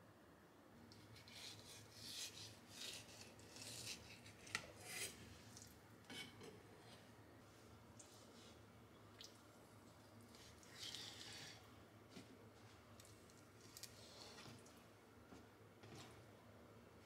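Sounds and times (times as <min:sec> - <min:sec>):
knife scraping cutting board: 0:01.2 - 0:05.2.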